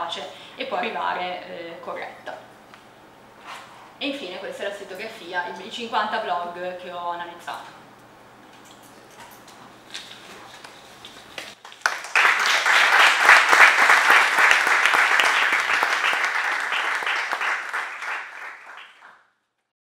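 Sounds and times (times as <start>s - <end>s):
audience applauding: 11.6s - 19.2s.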